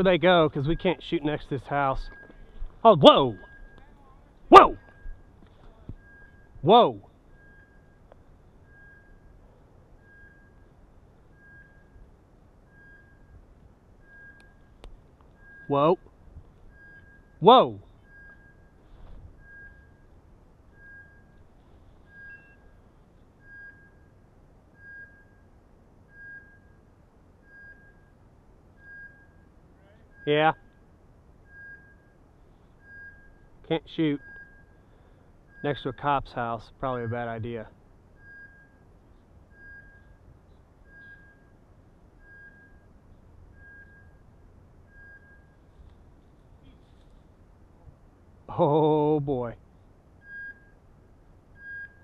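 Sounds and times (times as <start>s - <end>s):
high beeps from dog collar: 0.0s - 9.4s, 10.0s - 12.0s, 12.6s - 13.4s, 28.8s - 30.7s, 32.8s - 34.9s
collar beeping: 0.0s - 47.7s, 50.1s - 52.0s
faint low wind: 0.0s - 52.0s.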